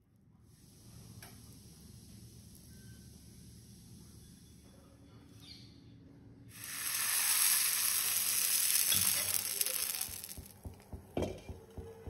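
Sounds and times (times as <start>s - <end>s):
batter sizzling on hot griddle: 0.5s - 3.8s, 6.5s - 10.8s.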